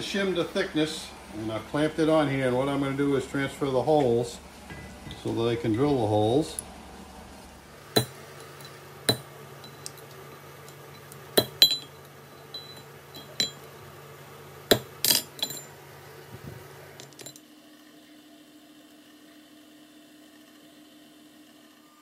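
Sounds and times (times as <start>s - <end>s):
drill press motor humming: 0.0s - 22.0s
hammer tapping metal punch: 7.9s - 13.8s, 14.7s - 15.7s.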